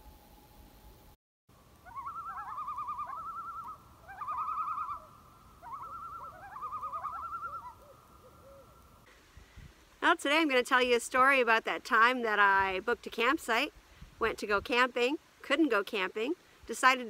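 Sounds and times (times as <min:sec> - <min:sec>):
bird trilling: 0:01.8 - 0:08.8.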